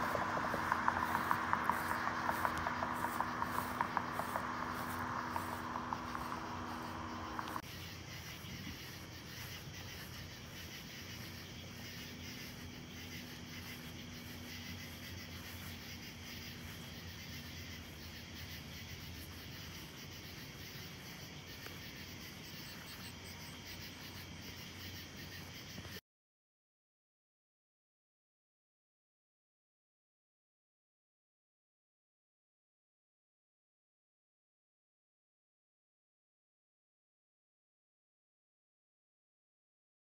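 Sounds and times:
crickets chirping: 0.0s - 26.0s.

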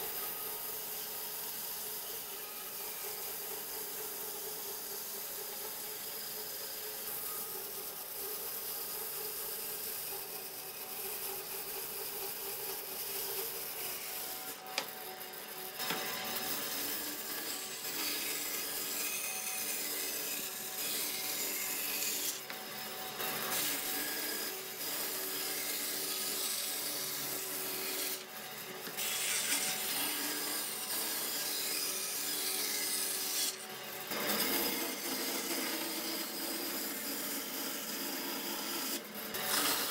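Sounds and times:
bandsaw cutting wood: 0.0s - 39.9s.

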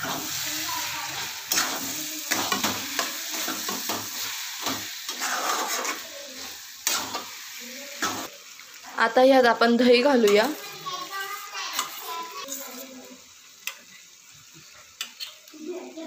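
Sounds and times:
spatula scraping a pan: 0.0s - 8.3s, 10.2s - 13.0s
vegetables sizzling in a pan: 0.0s - 16.0s.

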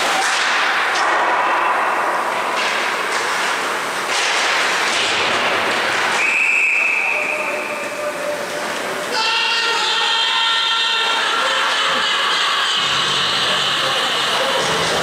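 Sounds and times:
hockey sticks: 0.0s - 10.3s
referee's whistle blast: 6.2s - 8.0s.

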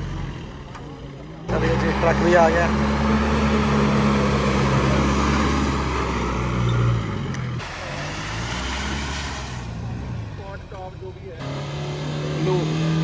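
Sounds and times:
vehicle engine running: 0.0s - 13.0s
water splashing from wheels: 7.6s - 11.2s.

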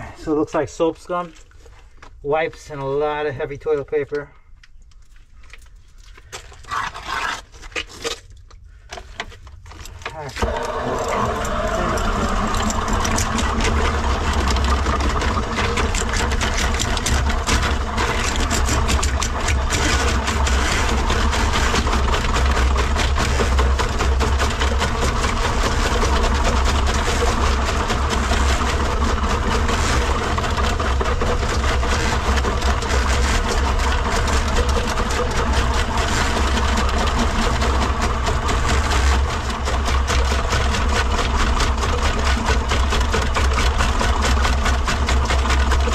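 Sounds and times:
drain-cleaning machine running: 10.0s - 45.9s.

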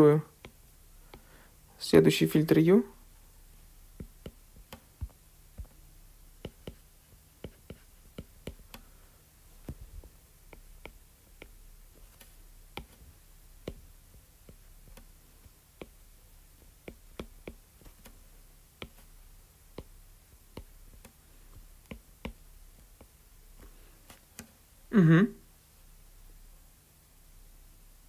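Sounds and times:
faint electrical hum: 0.0s - 28.0s
stylus tapping on drawing tablet: 0.4s - 1.3s, 3.9s - 5.8s, 6.4s - 8.9s, 9.6s - 24.5s.

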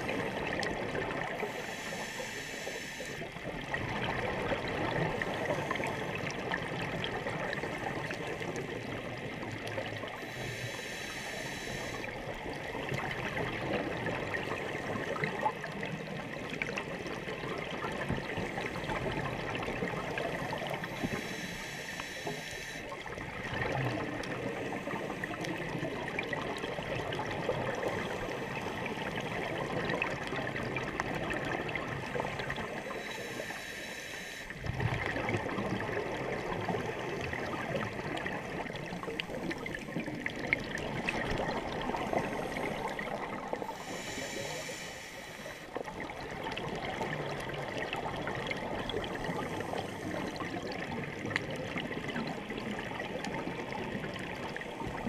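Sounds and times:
muffled underwater water noise: 0.0s - 55.0s
diver's exhaled breath bubbling: 18.3s - 51.2s.

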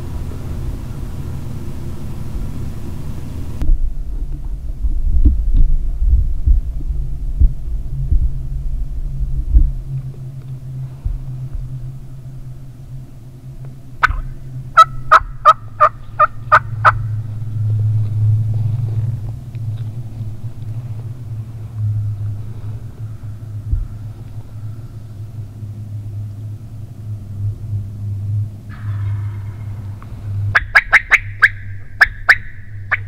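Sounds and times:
low steady hum: 0.0s - 33.0s
turkey yelps: 14.0s - 17.0s, 30.5s - 33.0s.

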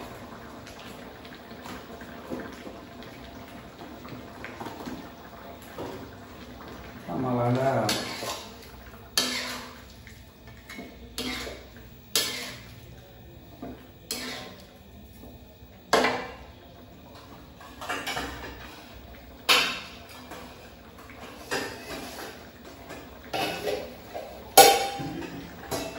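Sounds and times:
metal spatula clanking on wok: 24.6s - 25.1s.

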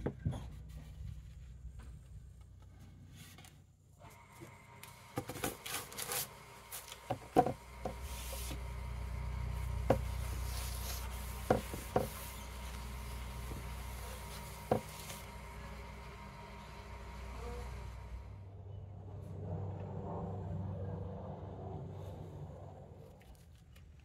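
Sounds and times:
hands rubbing on wooden board: 9.9s - 15.2s.

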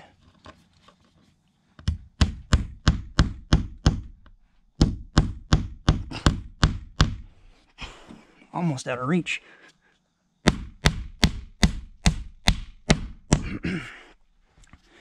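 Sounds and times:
hammer striking wood: 1.9s - 4.1s, 4.8s - 7.2s, 10.4s - 13.5s.

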